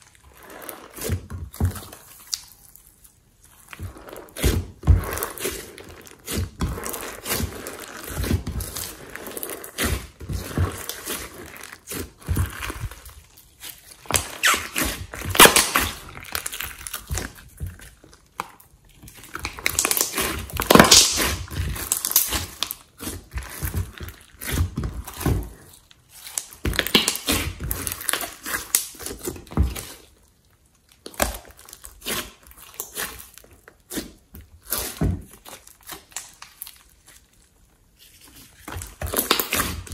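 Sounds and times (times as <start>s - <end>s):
slime squishing and clicking: 1.8s - 2.9s.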